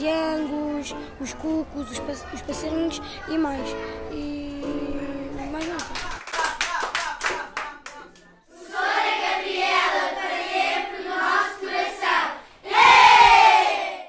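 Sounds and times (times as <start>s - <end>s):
hand claps: 5.6s - 8.3s
young children singing together: 8.5s - 14.0s.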